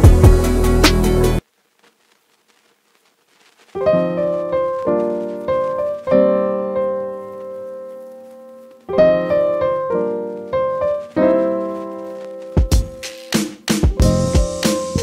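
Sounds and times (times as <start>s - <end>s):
drum beat: 0.0s - 1.1s, 12.6s - 15.0s
piano chords: 3.8s - 15.0s.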